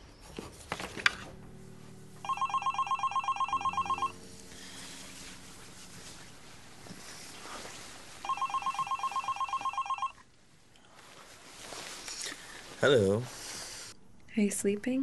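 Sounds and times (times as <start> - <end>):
telephone ringing: 2.2 - 4.8, 8.2 - 10.2.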